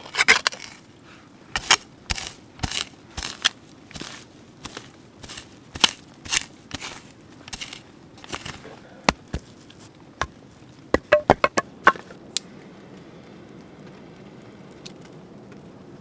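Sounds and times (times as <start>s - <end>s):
faint steady hiss: 0.0s - 16.0s
spade digging into soil: 1.5s - 9.5s
sharp knocks: 10.9s - 12.1s.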